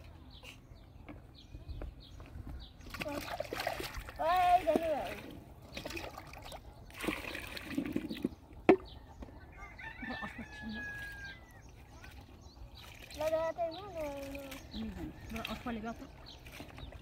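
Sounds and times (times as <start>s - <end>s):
jug knocking on concrete: 7.8s - 9.3s
rooster crowing: 9.4s - 11.6s.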